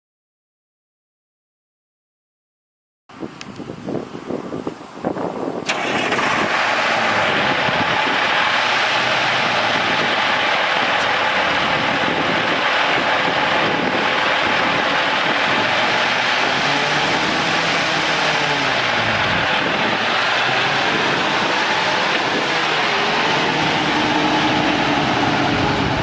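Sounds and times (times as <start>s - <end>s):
diesel engine cranking: 5.1s - 26.0s
diesel engine running: 5.5s - 26.0s.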